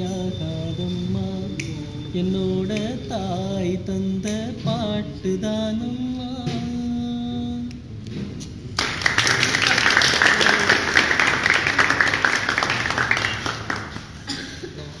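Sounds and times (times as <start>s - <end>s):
man singing: 0.0s - 7.9s
group clapping: 8.8s - 14.4s.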